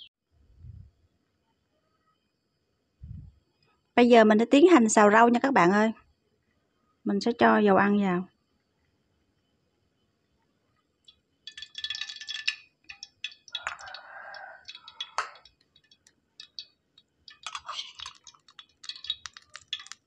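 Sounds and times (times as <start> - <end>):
oil crackling and spitting in wok: 11.4 - 20.0.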